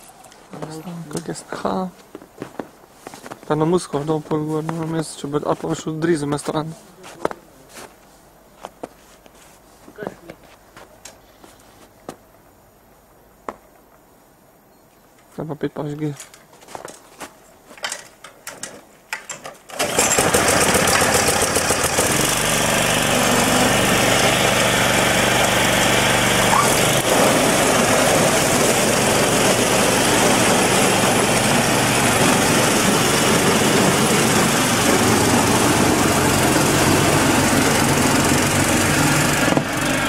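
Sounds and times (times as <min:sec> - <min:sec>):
snow blower throwing snow: 0:19.7 - 0:40.0
small engine running loudly: 0:19.8 - 0:40.0.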